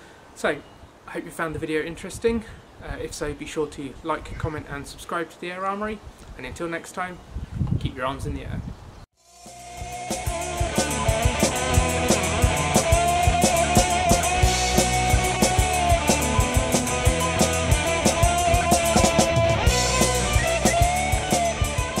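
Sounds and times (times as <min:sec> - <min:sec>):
instrumental rock music: 0:09.3 - 0:22.0.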